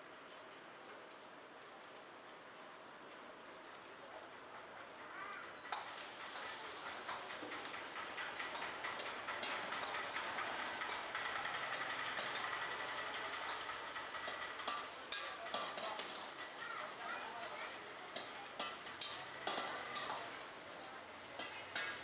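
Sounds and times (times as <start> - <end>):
frying sizzle: 5.2 - 22.0
metal spatula scraping a wok: 5.7 - 22.0.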